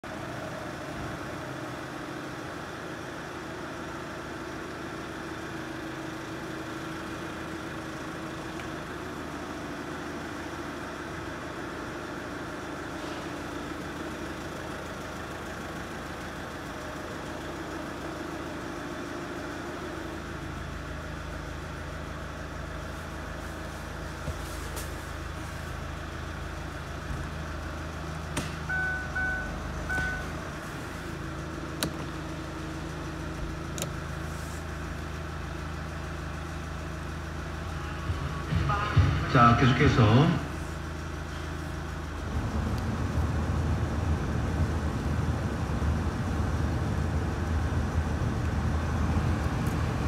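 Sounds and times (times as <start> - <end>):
diesel engine idling: 0.0 - 50.0
click: 33.7 - 33.9.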